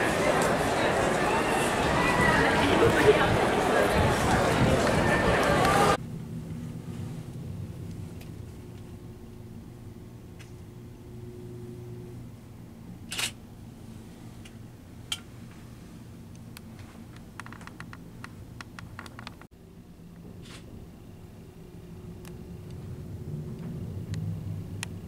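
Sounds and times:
low steady hum: 4.6 - 17.4, 18.0 - 25.0.

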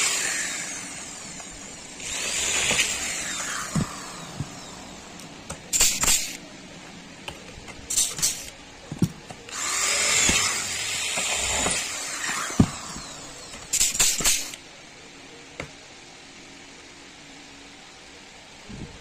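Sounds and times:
power drill whirring: 0.0 - 6.4, 9.5 - 14.6.

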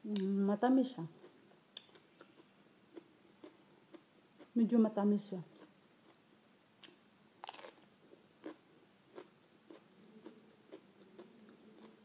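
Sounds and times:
cabbage crunching as chewed: 7.4 - 12.0.

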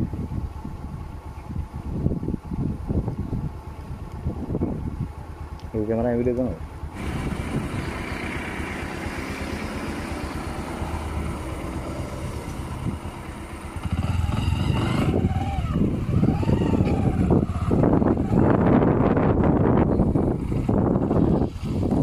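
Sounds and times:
small engine idling: 6.7 - 22.0.

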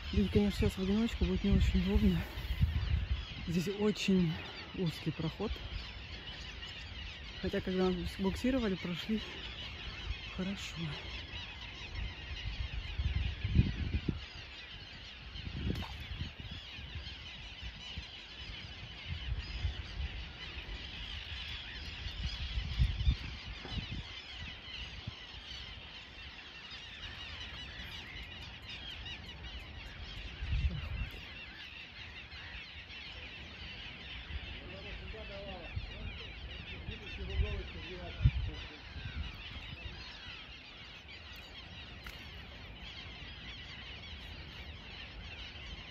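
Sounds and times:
birds calling in chorus: 0.0 - 45.9
wind buffeting microphone: 0.0 - 45.9.

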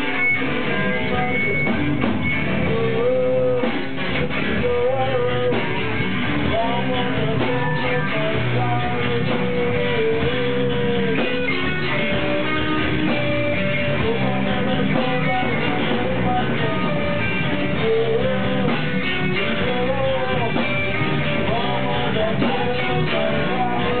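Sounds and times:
guitar music with sliding melody: 0.0 - 24.0.

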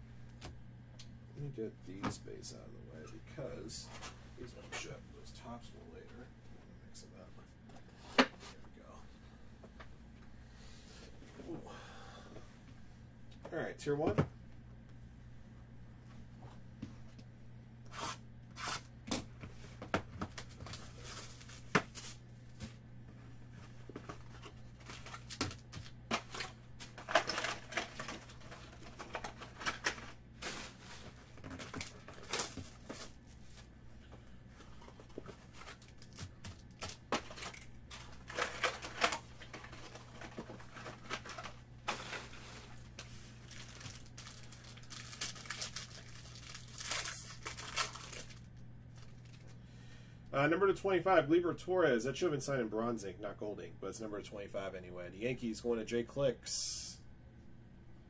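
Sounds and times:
low steady hum: 0.0 - 58.0
cards rustling and crinkling: 19.4 - 22.8, 23.5 - 33.7, 34.5 - 49.6
foil wrapper tearing: 35.6 - 49.6.

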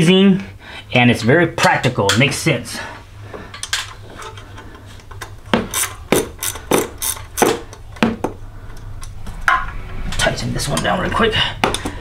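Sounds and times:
wrench clicking and clanking: 5.1 - 7.8.

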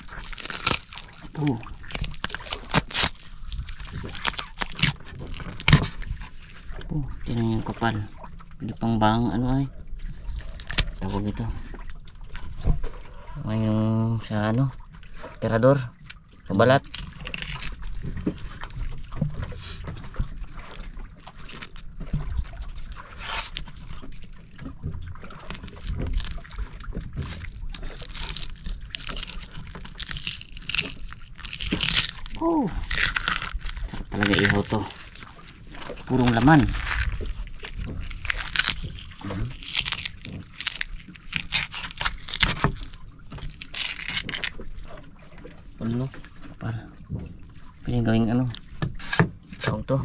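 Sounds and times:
fish skin scraping and tearing: 0.0 - 6.9, 10.1 - 11.3, 16.8 - 18.7, 22.9 - 24.1, 25.2 - 45.0, 48.9 - 49.7.

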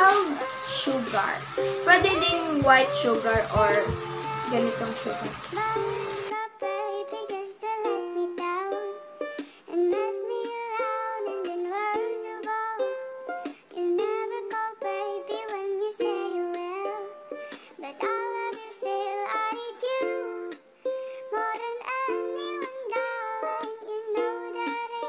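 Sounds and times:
plucked string melody: 0.0 - 25.0.

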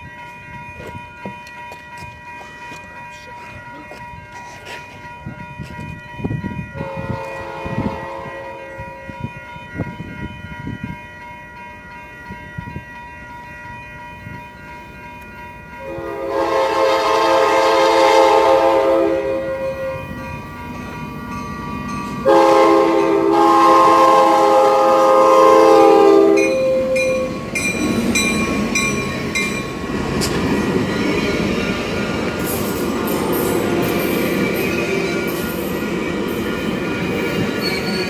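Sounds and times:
crossing bell ringing: 0.0 - 38.0
train rumbling on rails: 0.0 - 38.0
train horn blasts: 6.8 - 9.2, 15.8 - 20.2, 22.2 - 27.4.

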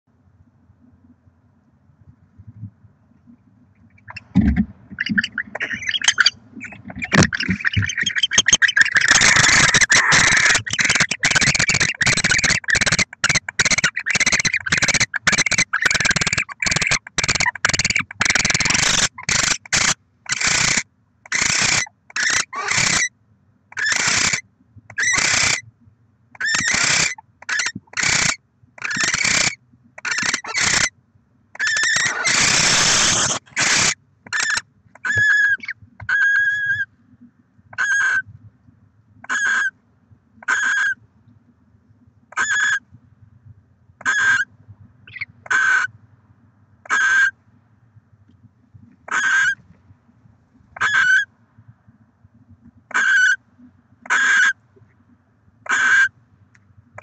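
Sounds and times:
barn owls calling: 3.9 - 23.1, 23.7 - 25.6, 26.4 - 30.9, 31.6 - 36.9, 37.7 - 38.3, 39.2 - 39.8, 40.4 - 41.0, 42.3 - 42.8, 44.0 - 46.0, 46.8 - 47.4, 49.1 - 49.6, 50.8 - 51.3, 52.9 - 53.4, 54.0 - 54.6, 55.6 - 56.2.

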